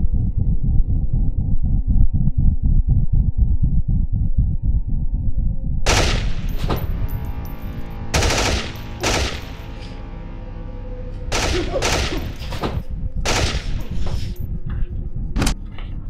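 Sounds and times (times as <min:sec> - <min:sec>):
pistol gunshots with echo: 0:05.9 - 0:06.9, 0:08.2 - 0:09.7, 0:11.3 - 0:12.6, 0:13.3 - 0:14.0.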